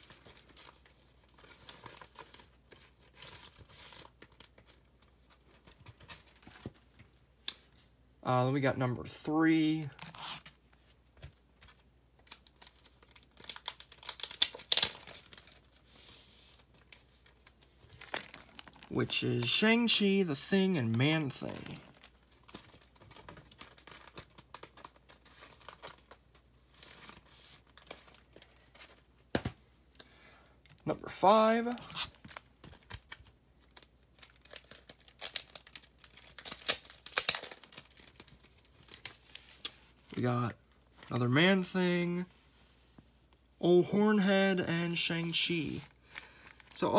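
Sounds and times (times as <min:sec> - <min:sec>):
plastic bags crinkling: 0:12.2 - 0:15.9, 0:16.5 - 0:26.5, 0:31.6 - 0:39.9.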